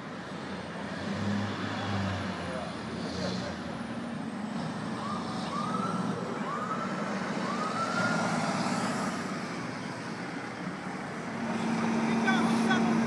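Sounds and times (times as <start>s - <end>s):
traffic and engine noise: 0.0s - 13.0s
emergency vehicle siren: 4.2s - 13.0s.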